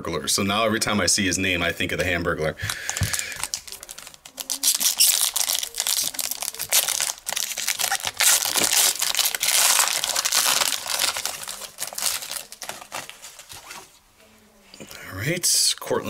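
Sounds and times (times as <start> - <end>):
foil wrapper tearing and crinkling: 2.7 - 13.8.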